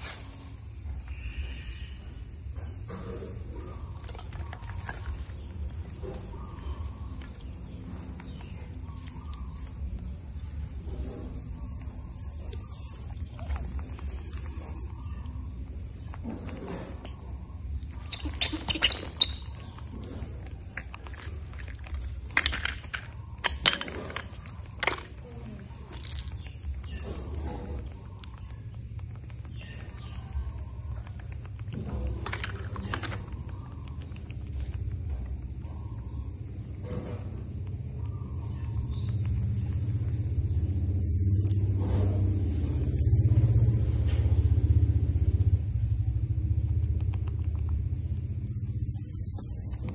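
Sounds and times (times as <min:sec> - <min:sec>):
insect trilling: 0:00.0 - 0:49.9
steady low hum: 0:00.0 - 0:49.9
sharp clicks and rustles: 0:16.0 - 0:35.7.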